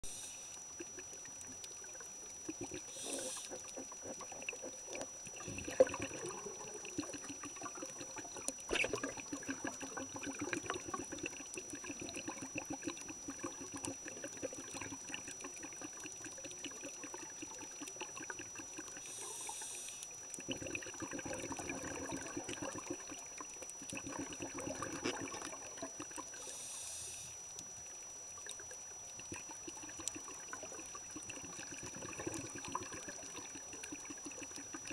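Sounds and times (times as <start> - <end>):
faint high whine: 0.0 - 3.7, 18.6 - 20.4, 24.6 - 34.9
underwater crackle: 0.0 - 34.9
scuba bubbles rushing: 0.8 - 19.1, 20.4 - 26.4, 29.2 - 34.9.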